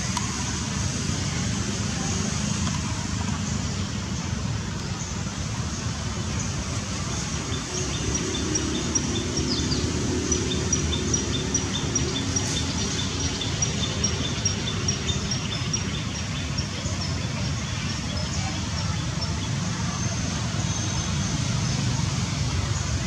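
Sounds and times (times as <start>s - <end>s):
low rumble of distant traffic: 0.0s - 23.0s.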